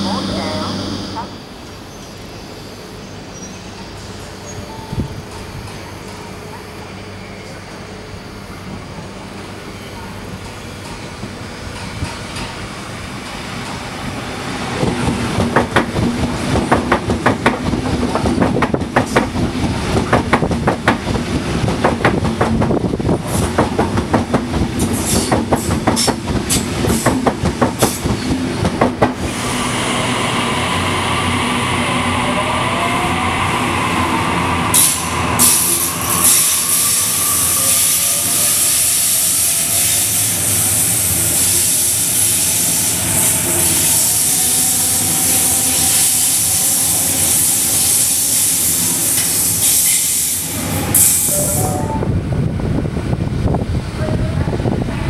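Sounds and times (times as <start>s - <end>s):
train low hum: 0.0s - 55.0s
train rumble and hiss: 0.0s - 55.0s
train wheels clattering over rail joints: 14.8s - 29.2s.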